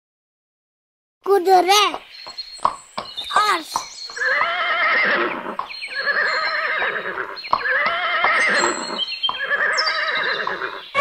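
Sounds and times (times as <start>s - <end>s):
horse whinnying: 4.2s - 11.0s.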